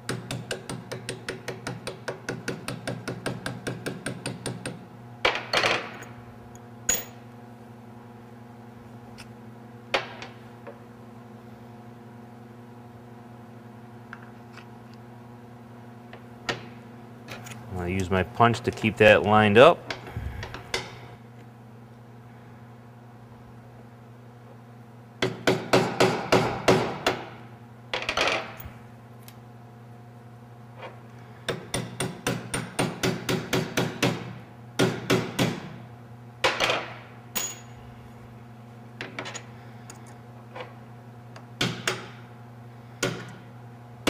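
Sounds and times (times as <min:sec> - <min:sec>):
hammer tapping metal punch: 0:00.1 - 0:04.8.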